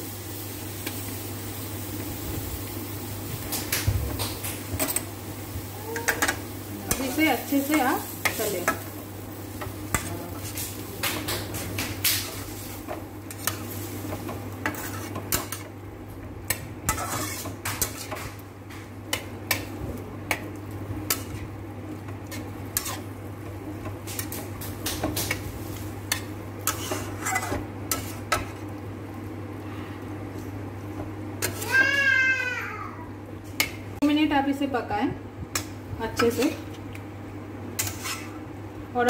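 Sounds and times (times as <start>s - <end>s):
steady low hum: 0.0s - 31.6s
metal utensil scraping a pan: 14.6s - 15.7s, 16.9s - 18.3s, 22.3s - 23.1s, 26.1s - 28.5s, 37.8s - 38.4s.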